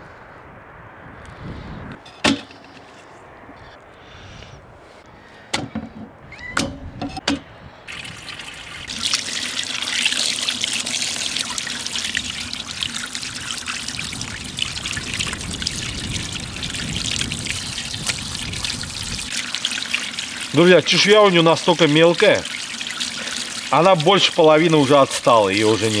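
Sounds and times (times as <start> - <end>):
tap water splashing over fish: 17.0 - 24.3.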